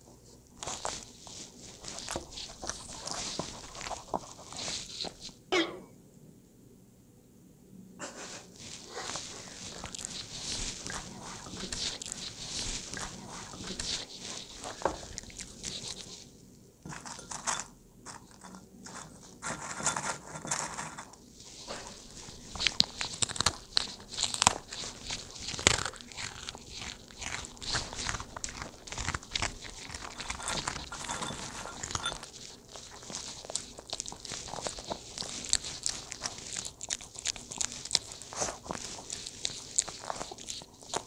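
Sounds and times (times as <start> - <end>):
dog crunching vegetables: 0.5 - 5.4, 8.5 - 41.0.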